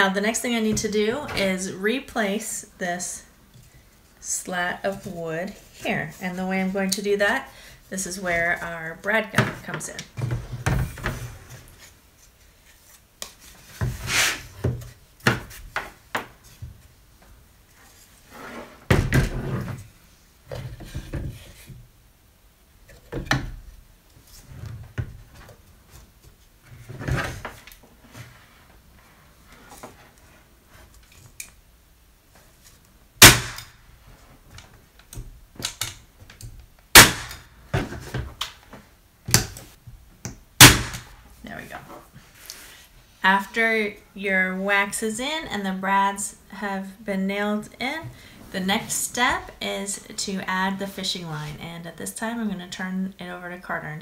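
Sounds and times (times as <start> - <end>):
nail gun firing: 33.2 - 33.7, 36.9 - 37.4, 40.6 - 41.1.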